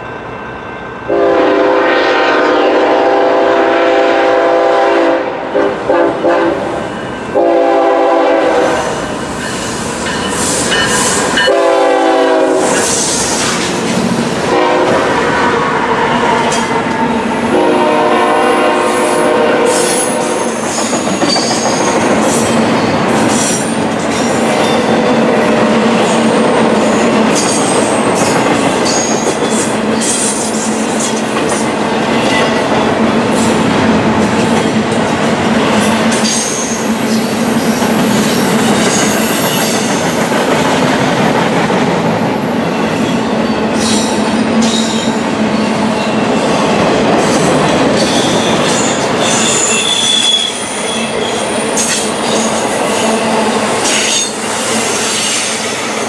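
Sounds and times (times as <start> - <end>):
locomotive air horn blasts: 1.1 - 6.7, 7.4 - 8.9, 11.5 - 12.8, 14.4 - 15.2, 17.5 - 20.6, 49.5 - 50.6
wheel squeals: 48.0 - 52.5, 53.8 - 56.0.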